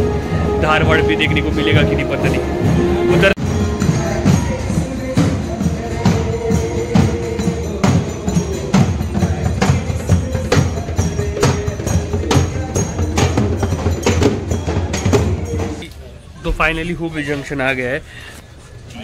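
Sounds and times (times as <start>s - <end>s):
barrel drums beaten with sticks: 3.4s - 15.8s.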